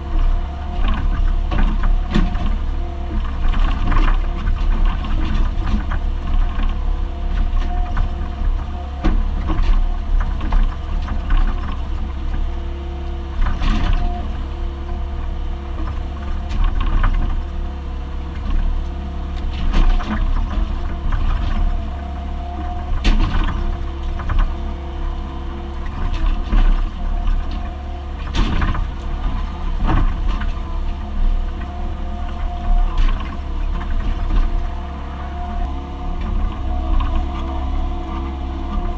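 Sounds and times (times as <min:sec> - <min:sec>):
diesel engine running under load: 0:00.0 - 0:38.9
hydraulic whine: 0:16.4 - 0:38.9.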